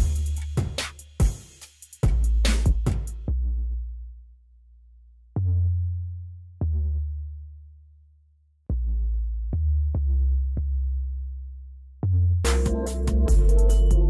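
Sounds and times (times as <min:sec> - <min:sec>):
deep electronic bass notes: 0:08.7 - 0:14.0.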